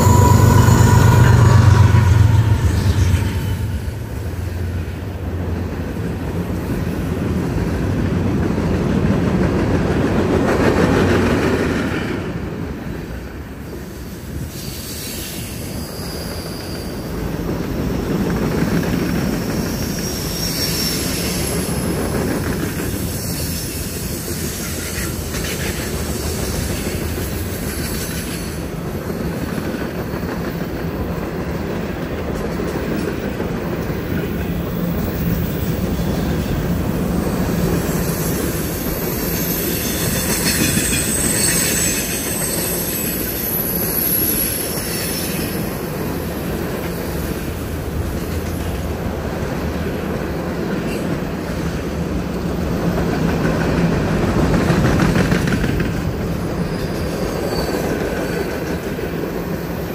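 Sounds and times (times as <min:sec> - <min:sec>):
high wheel squeal: 0:00.0 - 0:04.8, 0:14.5 - 0:17.3, 0:19.4 - 0:22.0, 0:37.6 - 0:46.0, 0:56.6 - 0:58.5
train wheels rumbling on rail: 0:00.0 - 0:59.9.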